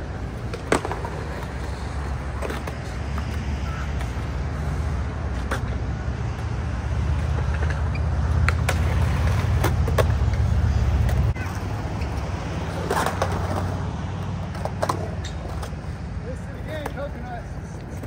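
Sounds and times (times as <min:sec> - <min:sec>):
skateboard wheels rolling on concrete: 0:00.0 - 0:18.0
skateboard clacking on concrete: 0:00.3 - 0:03.4, 0:08.4 - 0:13.7, 0:14.4 - 0:15.8, 0:16.7 - 0:18.0.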